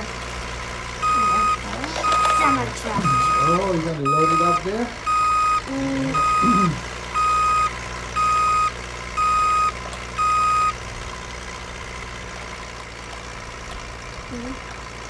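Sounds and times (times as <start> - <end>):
toy back-up alarm beeping: 1.0 - 10.8.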